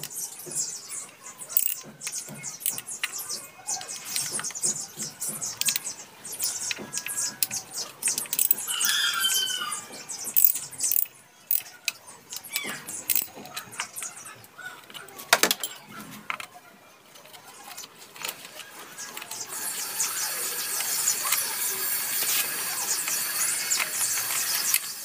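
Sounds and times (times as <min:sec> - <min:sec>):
hand tool clicking on bolts: 0:01.6 - 0:03.2, 0:03.8 - 0:08.7, 0:10.3 - 0:13.7.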